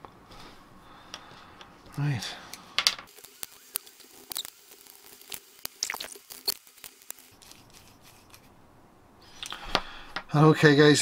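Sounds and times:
small metal clicks and scrapes: 3.0s - 8.5s.

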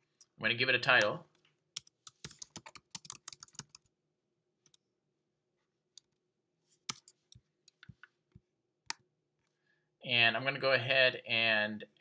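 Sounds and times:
typing on computer keyboard: 1.8s - 3.9s.

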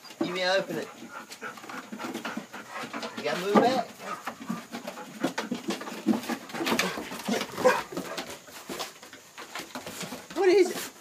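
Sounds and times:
dog whining: 7.3s - 7.9s.

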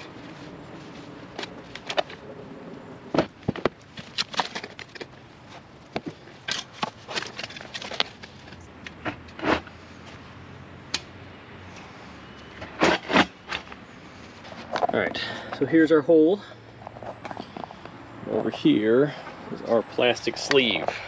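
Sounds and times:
cardboard tube scraping and knocking: 12.6s - 13.6s.

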